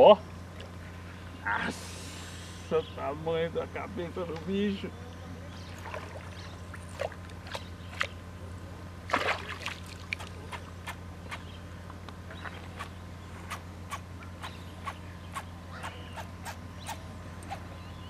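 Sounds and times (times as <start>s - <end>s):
steady low hum: 0.0s - 18.0s
water splashing: 5.7s - 8.1s, 9.1s - 10.6s.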